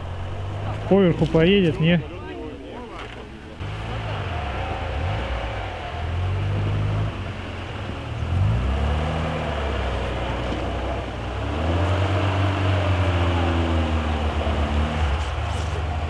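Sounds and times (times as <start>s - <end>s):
engine revving under load: 3.6s - 16.0s.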